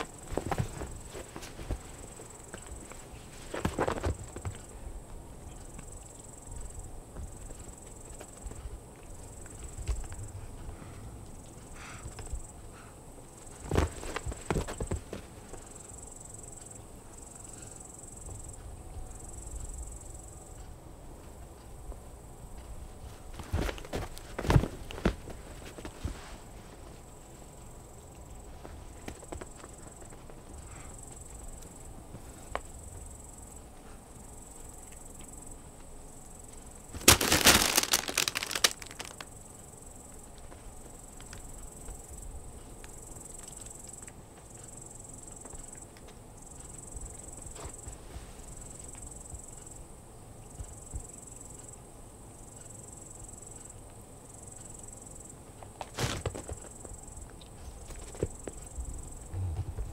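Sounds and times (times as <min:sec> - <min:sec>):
cats scrabbling and thumping: 0:00.0 - 0:04.8, 0:13.5 - 0:15.6, 0:23.0 - 0:27.0, 0:55.6 - 0:57.0, 0:57.6 - 0:59.9.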